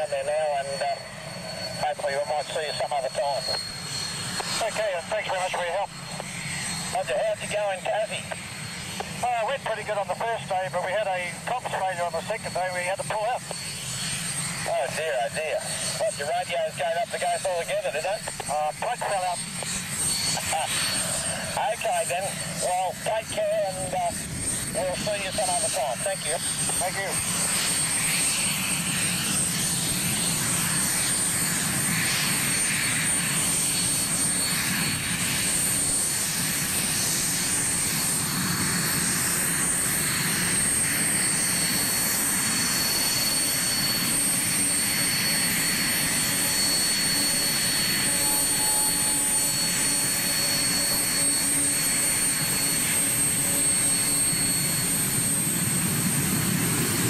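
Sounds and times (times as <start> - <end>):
jet engine high whine: 0.0 - 57.0.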